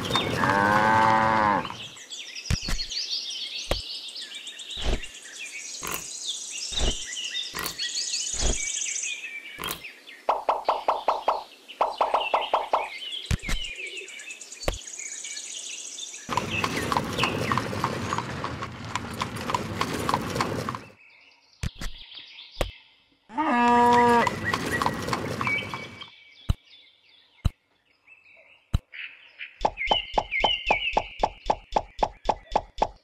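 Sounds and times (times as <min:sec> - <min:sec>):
drawn-out animal call: 0:00.0 - 0:01.9, 0:16.3 - 0:21.0, 0:23.3 - 0:26.1
horse hooves clip-clopping: 0:00.0 - 0:01.9, 0:16.3 - 0:21.0, 0:23.7 - 0:26.1
birds chirping: 0:00.0 - 0:33.0.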